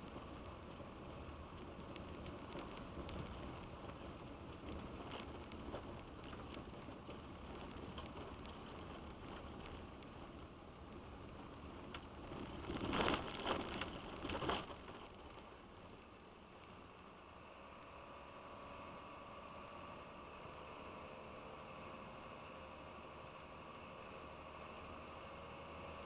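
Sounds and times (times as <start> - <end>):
tyres rumbling on gravel: 0.0 - 17.0.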